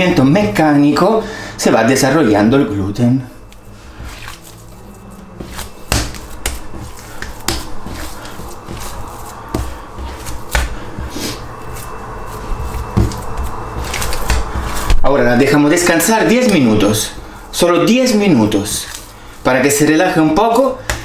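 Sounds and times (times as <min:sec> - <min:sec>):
sticky dough kneading: 0:03.4 - 0:21.0
dough smacks: 0:05.4 - 0:11.0, 0:12.9 - 0:15.0.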